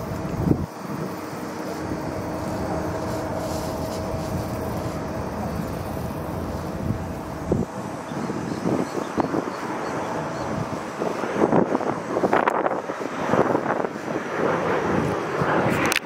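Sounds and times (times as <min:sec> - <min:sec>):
faint steady whine: 0:00.0 - 0:16.0
jet engines of airliner: 0:00.0 - 0:16.0
low rumble: 0:01.6 - 0:08.6.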